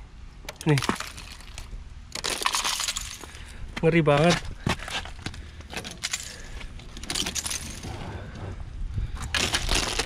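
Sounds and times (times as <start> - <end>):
ice cracking and tinkling: 0.6 - 3.4
ice crunching: 9.2 - 10.0.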